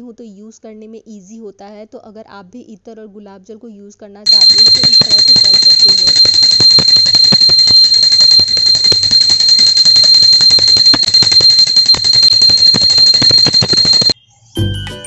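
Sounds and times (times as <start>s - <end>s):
hand bell ringing rapidly: 4.3s - 14.2s.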